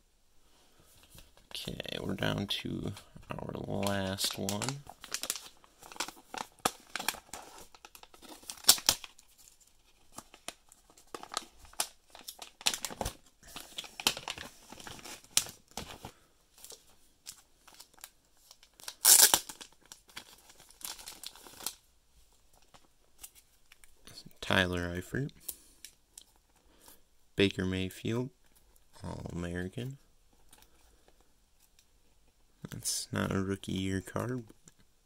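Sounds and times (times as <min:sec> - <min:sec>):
plastic pouch crinkling and tearing: 0:03.6 - 0:21.8.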